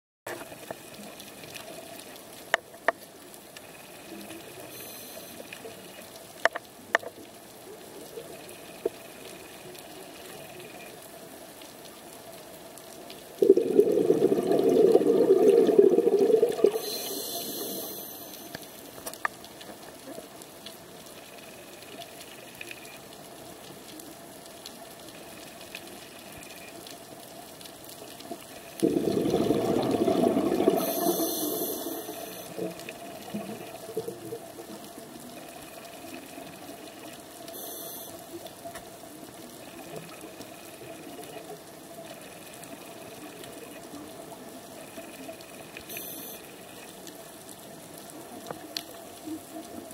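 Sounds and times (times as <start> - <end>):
regulator hiss: 4.0 - 5.5, 13.4 - 18.9, 30.4 - 32.7, 37.6 - 38.2
exhaled bubbles underwater: 13.4 - 18.7, 28.4 - 37.0
small clicks: 16.6 - 27.0.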